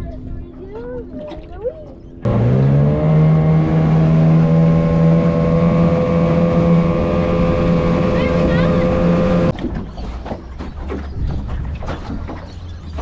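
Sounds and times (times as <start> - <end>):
wind: 0.0 - 13.0
outboard motor droning: 2.3 - 9.5.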